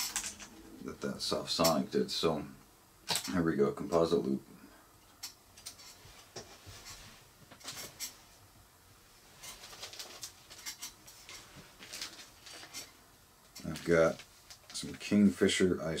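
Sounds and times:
faint rustles and ticks of tools: 0.0s - 2.0s, 2.6s - 15.2s.

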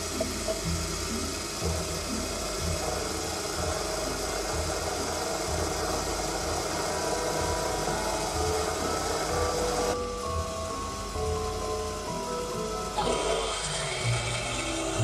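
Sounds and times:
drill boring into metal: 0.0s - 9.9s
mini lathe running: 0.0s - 15.0s.

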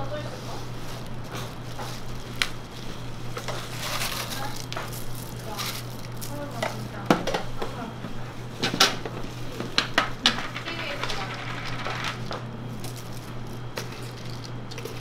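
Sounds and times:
steady low hum: 0.0s - 15.0s
containers and utensils clattering: 8.6s - 13.2s.

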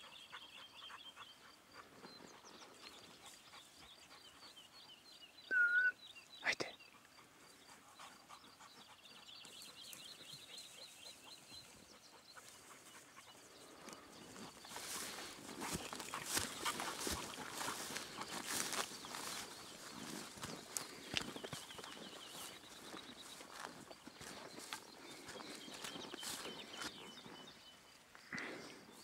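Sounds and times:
faint high chirping: 5.4s - 7.2s
rustling of tall grass: 12.4s - 27.6s
footsteps through vegetation: 13.8s - 27.5s.

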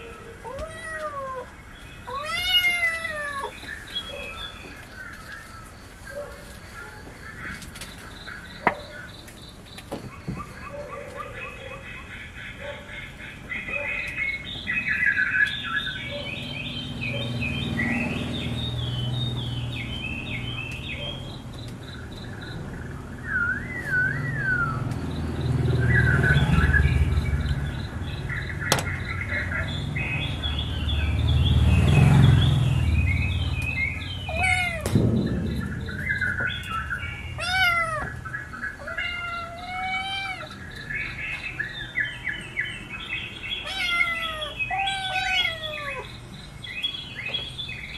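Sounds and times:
kittens meowing: 0.0s - 3.6s, 34.2s - 35.0s, 37.4s - 38.2s, 38.8s - 40.6s, 43.6s - 46.2s
small birds chirping: 0.0s - 47.9s
low rumbles: 21.9s - 38.3s.

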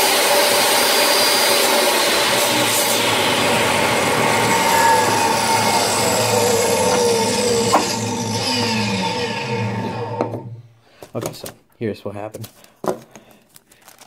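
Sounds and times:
power tool motor whine: 0.0s - 10.7s.

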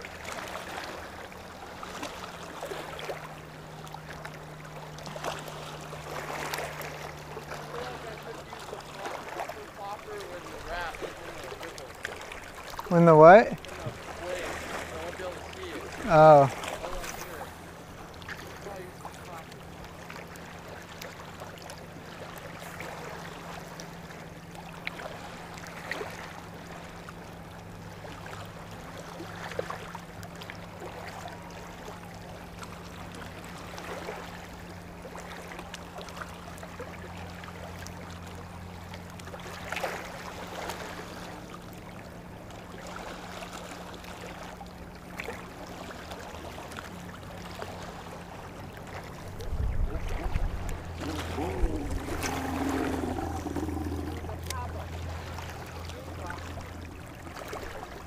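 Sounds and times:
water splashes: 0.0s - 58.0s
waves lapping on rocks: 0.0s - 58.0s
low hum: 49.1s - 58.0s.

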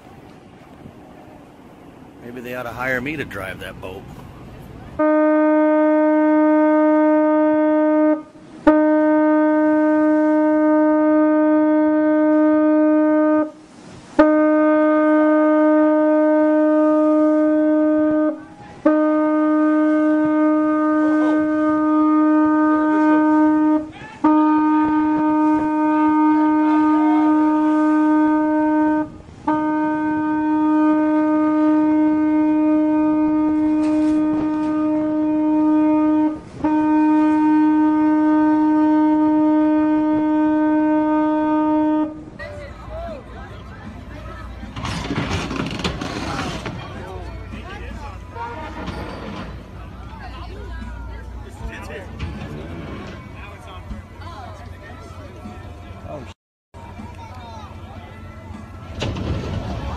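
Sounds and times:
ship's horn long blasts: 4.9s - 42.6s, 48.2s - 50.0s, 50.6s - 53.9s.

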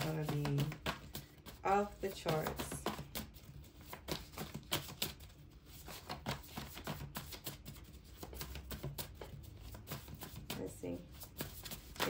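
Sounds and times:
cards tapping on a table: 0.0s - 5.2s.

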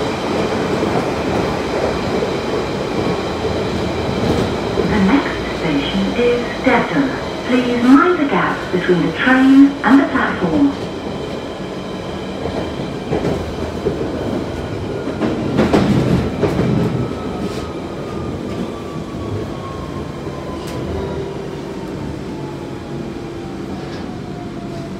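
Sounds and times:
train wheels rumbling on rails: 0.0s - 24.9s.

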